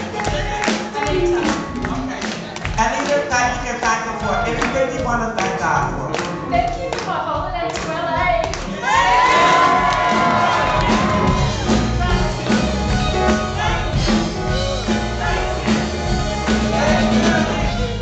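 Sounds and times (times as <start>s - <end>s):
people clapping: 0.0s - 13.1s, 14.8s - 18.0s
gospel band playing: 0.0s - 18.0s
woman singing: 6.5s - 8.7s.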